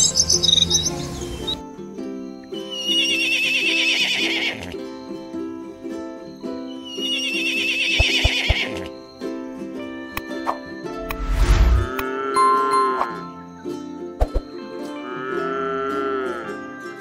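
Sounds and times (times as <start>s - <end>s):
background music: 0.0s - 17.0s
horse whinnying: 2.8s - 4.8s, 7.0s - 8.9s.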